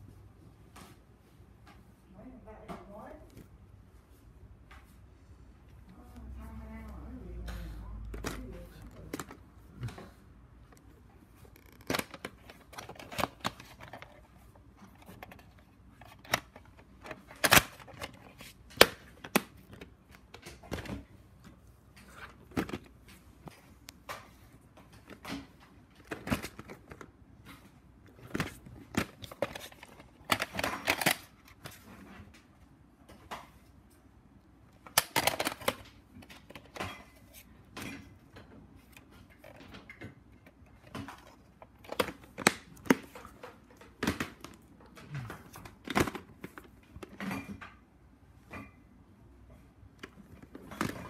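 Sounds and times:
plastic cases clicking and rattling: 8.0 - 32.5, 34.8 - 47.7, 50.0 - 51.0.

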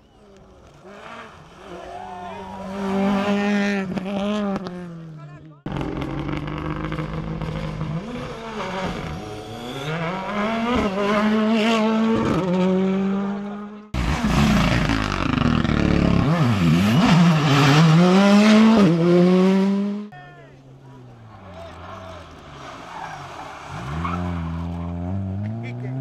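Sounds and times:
rally car engine revving through gears: 2.6 - 20.1, 23.6 - 26.0.

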